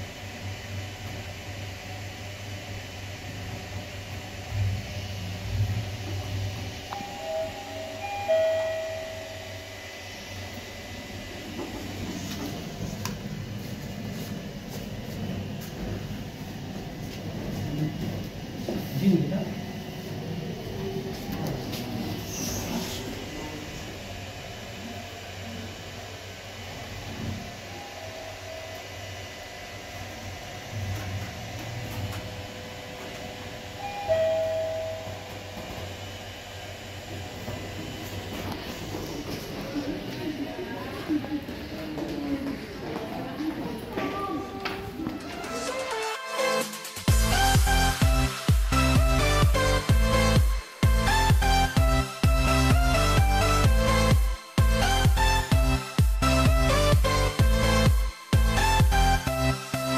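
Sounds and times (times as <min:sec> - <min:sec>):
steady low hum: 0:00.0 - 0:45.6
elevator doors opening: 0:04.5 - 0:09.8, 0:30.7 - 0:36.0
elevator two-note chime: 0:06.9 - 0:10.2, 0:33.8 - 0:35.6.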